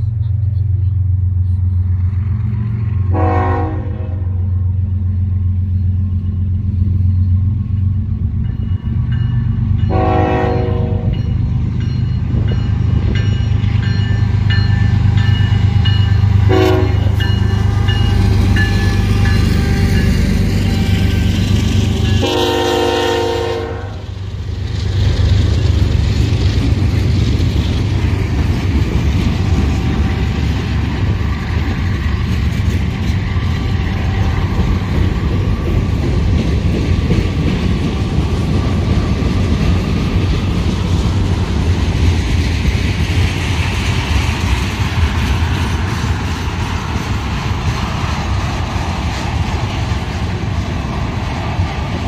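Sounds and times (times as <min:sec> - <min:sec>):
freight train rumbling past: 0:00.0 - 0:52.0
train horn: 0:03.1 - 0:04.5, 0:09.9 - 0:11.2, 0:16.4 - 0:24.1.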